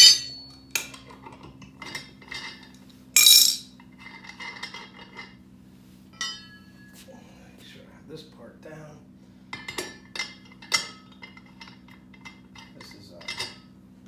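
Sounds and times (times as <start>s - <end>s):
loud ringing metal clank: 0.0s - 0.9s, 6.2s - 7.0s
tire bar clanking on metal: 0.0s - 5.4s, 9.6s - 13.8s.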